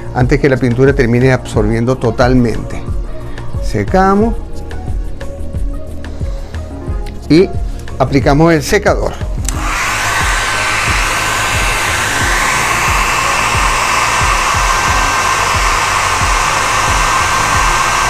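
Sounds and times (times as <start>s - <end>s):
hair dryer blowing with whine: 9.4s - 18.0s.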